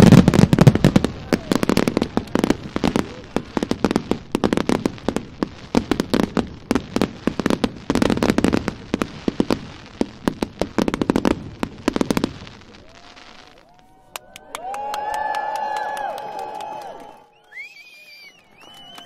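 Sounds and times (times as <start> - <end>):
fireworks bangs and crackles: 0.0 - 13.9.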